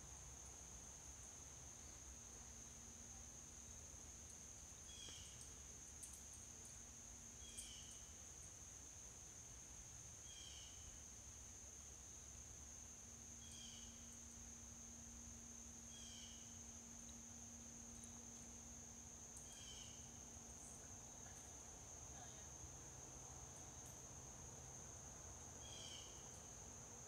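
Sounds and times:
high-pitched insect drone: 13.3s - 22.8s.

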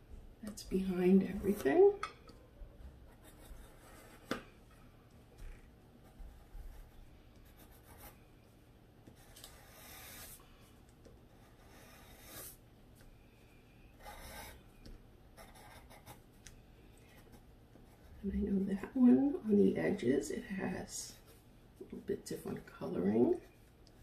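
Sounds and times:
pencil strokes on paper: 9.2s - 10.4s, 11.3s - 12.6s.

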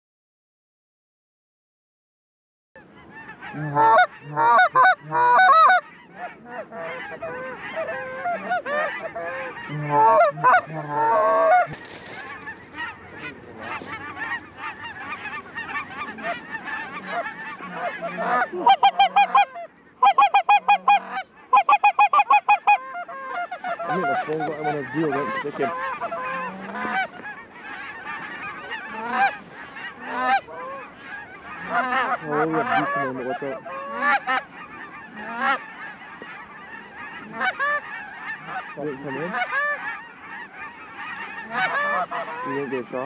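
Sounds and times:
geese honking: 2.8s - 43.0s.

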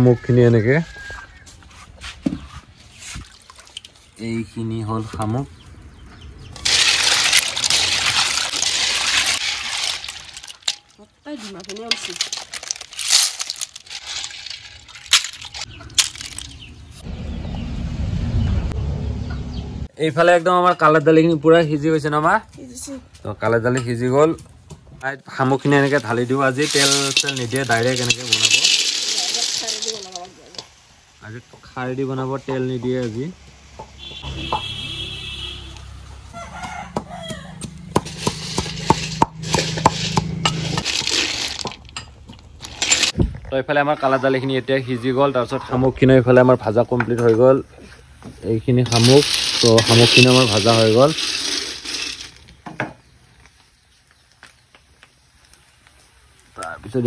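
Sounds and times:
water dripping: 3.2s - 4.0s
snail shells clattering into basket: 6.6s - 17.0s, 25.5s - 30.7s, 38.0s - 43.2s, 48.8s - 52.6s
pestle pounding in metal mortar: 37.6s - 40.8s.

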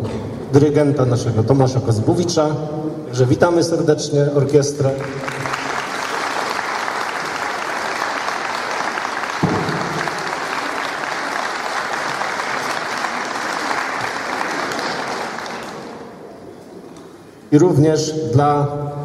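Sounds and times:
audience applauding: 4.8s - 16.2s
single thump: 9.4s - 10.1s.

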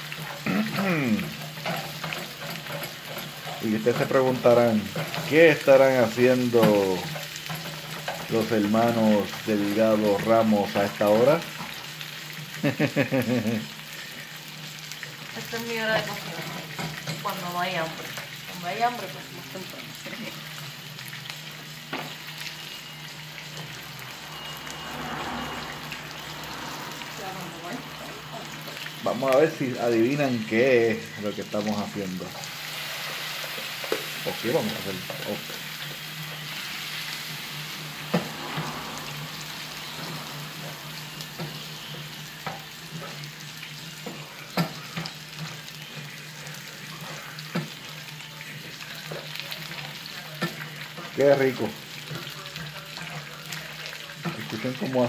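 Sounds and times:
chicken sizzling in oil: 0.0s - 55.0s.

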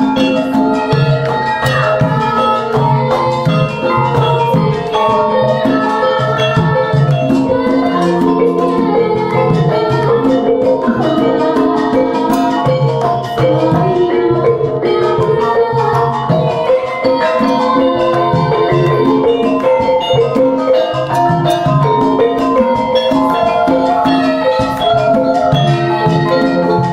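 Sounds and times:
hand drum strokes: 0.0s - 26.9s
metallophones and gongs: 0.0s - 26.9s.

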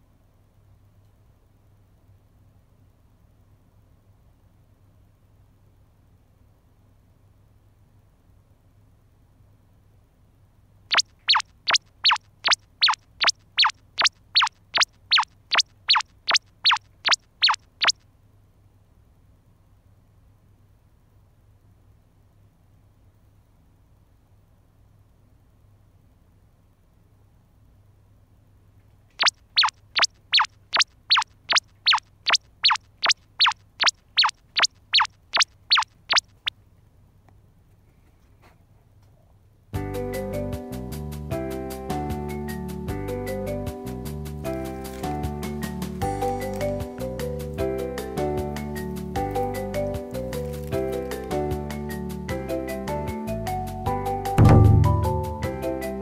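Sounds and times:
falling pitch comic whistle: 10.9s - 13.0s, 13.6s - 16.8s, 17.4s - 18.0s, 29.2s - 36.5s.

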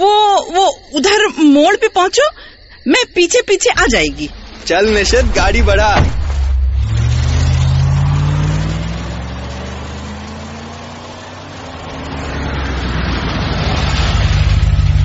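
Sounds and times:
car engine accelerating: 4.2s - 15.0s.

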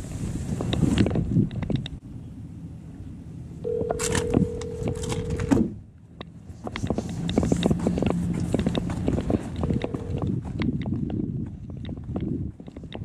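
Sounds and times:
phone ringback tone: 3.6s - 5.6s, 9.6s - 10.3s
footsteps on asphalt: 6.5s - 13.0s.

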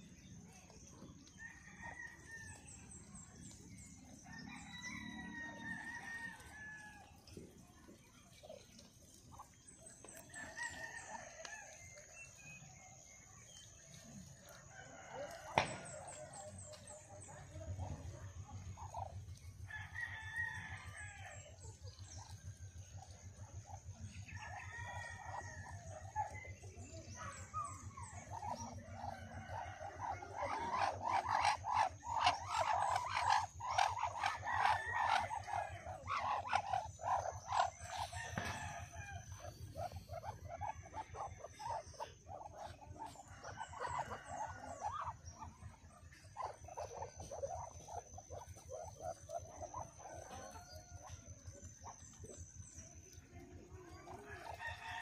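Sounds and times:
rooster crowing: 4.3s - 7.1s, 19.7s - 21.4s, 28.5s - 41.8s, 43.0s - 45.2s, 54.2s - 55.0s
chickens clucking: 21.9s - 55.0s.

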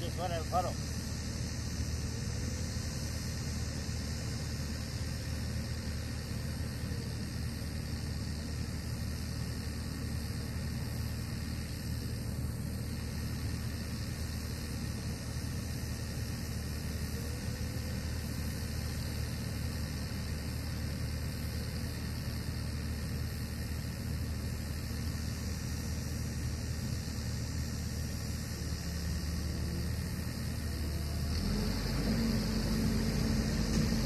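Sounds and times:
engine idling: 0.0s - 34.0s.

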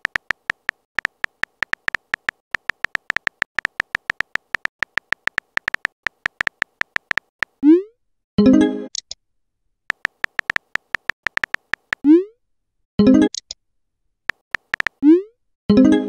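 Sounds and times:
keyboard tap clicks: 0.0s - 7.6s, 9.9s - 12.0s, 14.3s - 15.0s.

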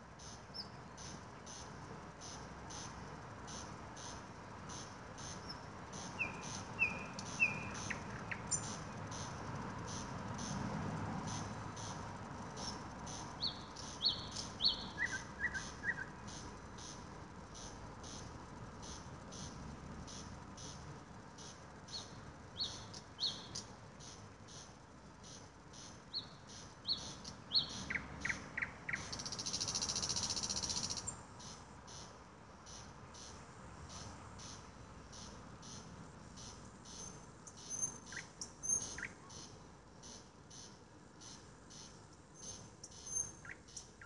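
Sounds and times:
insect chirping: 0.0s - 44.0s
high bird whistles: 6.0s - 9.3s, 13.4s - 16.1s.

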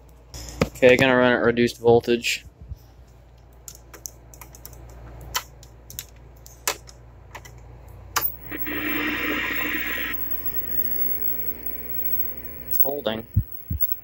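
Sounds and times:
steady electrical hum: 8.2s - 14.0s
television static hiss and buzz: 8.2s - 14.0s.

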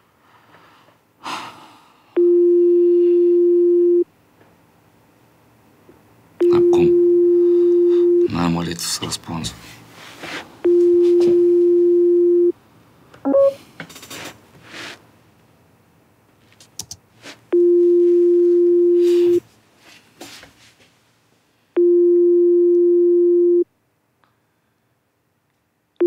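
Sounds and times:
phone ringing tone: 2.2s - 4.0s, 6.4s - 8.4s, 10.6s - 12.5s, 13.3s - 13.6s, 17.5s - 19.4s, 21.8s - 23.6s
soft rustling: 9.6s - 11.5s, 16.4s - 21.0s
short beep: 13.3s - 13.6s.

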